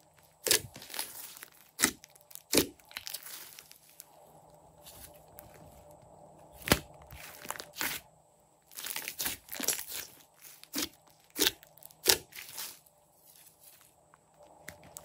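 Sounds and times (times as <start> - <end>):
slime air pops and crackles: 1.8 - 3.2.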